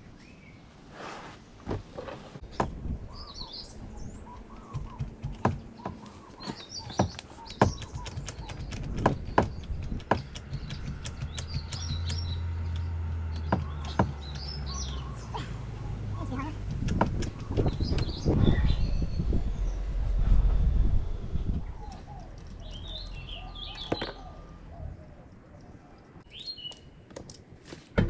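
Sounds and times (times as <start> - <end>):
birds chirping: 1.5 - 20.0, 21.5 - 27.1
sharp clicks and knocks: 4.2 - 15.0, 16.6 - 18.4.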